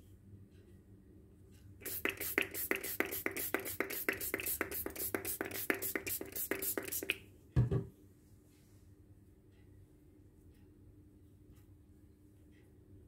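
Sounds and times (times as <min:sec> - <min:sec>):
spray bottle spritzes: 0:01.8 - 0:07.2
thump: 0:07.6 - 0:07.9.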